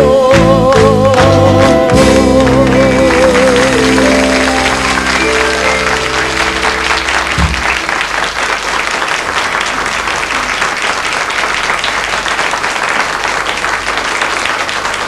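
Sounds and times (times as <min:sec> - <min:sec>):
audience applauding: 0:00.3 - 0:15.0
band playing held chord: 0:01.9 - 0:08.4
low thump: 0:07.4 - 0:07.8.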